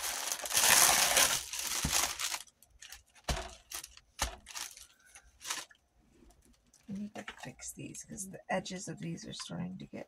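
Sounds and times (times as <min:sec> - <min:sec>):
plastic crinkling and rustling: 0:00.0 - 0:07.6.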